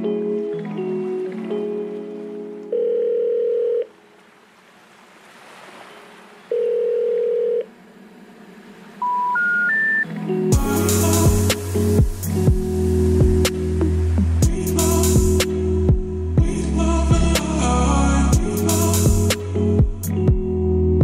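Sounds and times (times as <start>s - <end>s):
music: 0.0s - 2.9s, 9.1s - 21.0s
phone ringing tone: 2.7s - 4.0s, 6.5s - 7.7s, 9.0s - 10.1s
rising short beeps: 9.0s - 10.1s
loud music with heavy beat: 10.5s - 17.5s, 18.3s - 20.5s.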